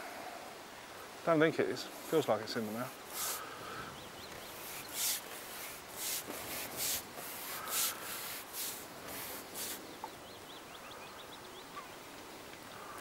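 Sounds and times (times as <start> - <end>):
small bird chirping: 3.1 - 6.1.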